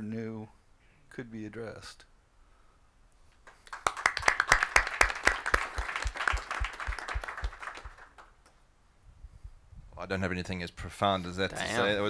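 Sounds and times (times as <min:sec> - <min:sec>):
small group clapping: 0:03.4 - 0:08.6.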